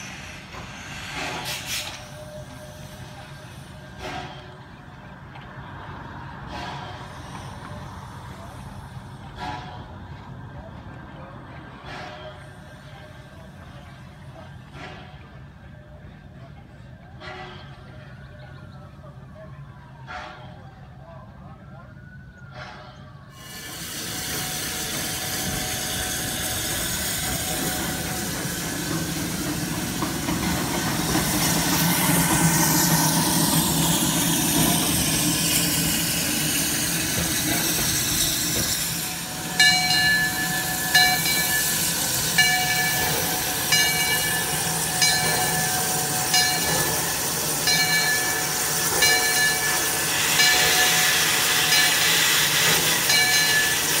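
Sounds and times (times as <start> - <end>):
steam locomotive hissing: 0.0 - 19.4, 22.2 - 54.0
locomotive bell ringing: 22.5 - 54.0.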